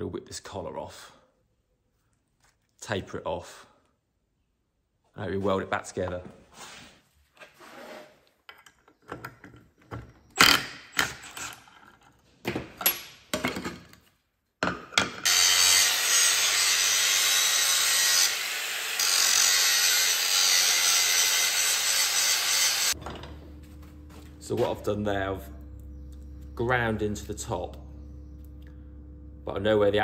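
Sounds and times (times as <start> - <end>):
angle grinder grinding steel: 15.2 - 28.6.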